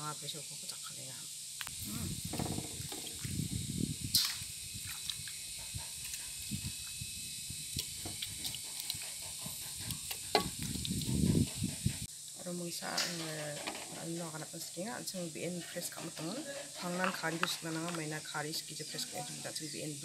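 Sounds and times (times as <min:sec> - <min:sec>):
wet squelching and slapping: 0:04.1 - 0:05.4, 0:07.7 - 0:11.2.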